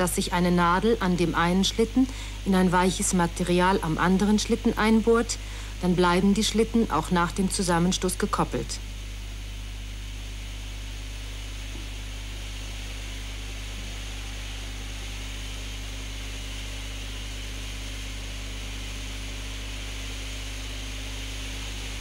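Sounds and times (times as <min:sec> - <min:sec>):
even hiss: 0:00.0 - 0:22.0
low hum: 0:00.0 - 0:22.0.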